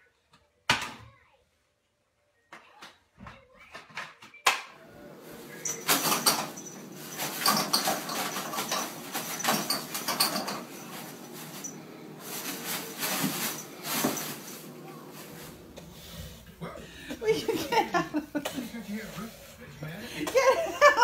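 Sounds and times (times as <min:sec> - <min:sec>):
toilet paper rustling: 0:04.8 - 0:21.0.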